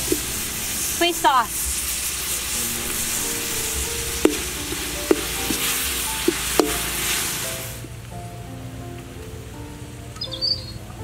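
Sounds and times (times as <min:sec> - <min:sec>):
garlic sizzling in a wok: 0:00.0 - 0:07.9
ladle knocking against wok: 0:03.4 - 0:07.2.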